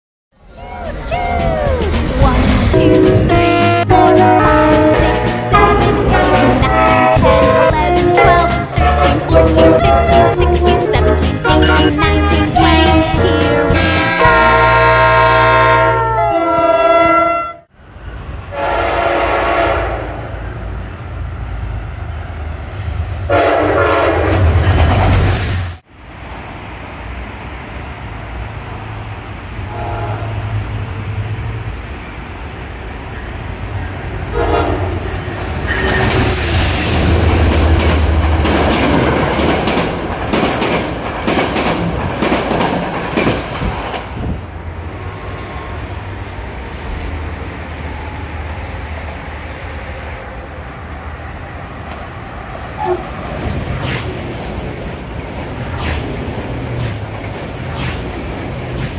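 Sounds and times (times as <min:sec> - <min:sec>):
low train rumble: 0:00.4 - 0:58.9
rail clatter: 0:00.5 - 0:14.8, 0:33.6 - 0:44.6, 0:51.7 - 0:58.9
train horn blasts: 0:02.7 - 0:11.2, 0:11.9 - 0:17.7, 0:18.5 - 0:20.3, 0:23.3 - 0:24.5, 0:29.7 - 0:30.5, 0:34.3 - 0:35.1.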